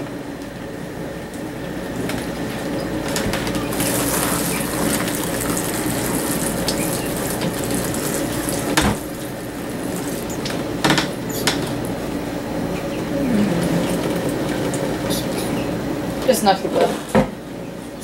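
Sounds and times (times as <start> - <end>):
sink sprayer hissing: 3.6 - 11.5.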